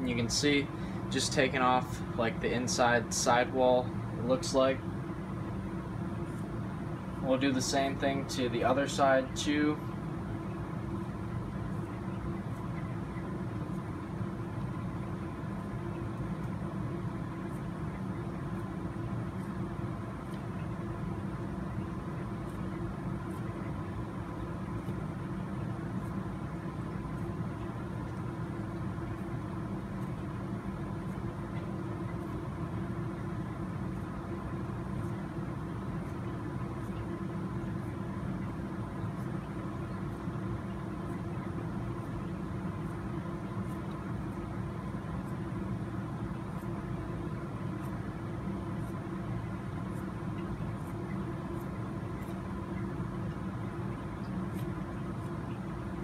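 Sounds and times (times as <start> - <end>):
steady low machine hum: 0.0 - 56.0.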